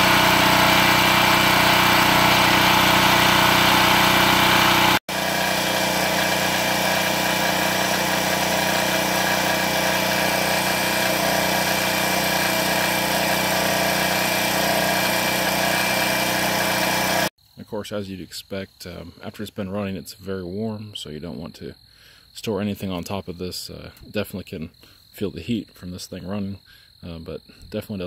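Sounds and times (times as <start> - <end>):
portable generator engine running: 0.0 - 17.3.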